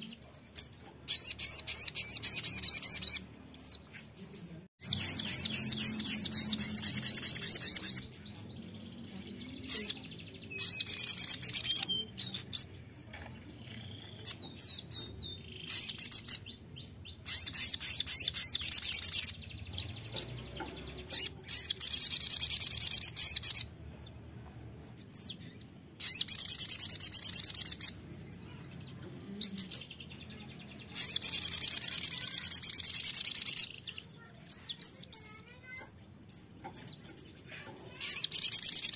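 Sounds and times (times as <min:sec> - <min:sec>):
bird twittering song: 0:00.0 - 0:38.9
faint bird chips: 0:24.9 - 0:38.9.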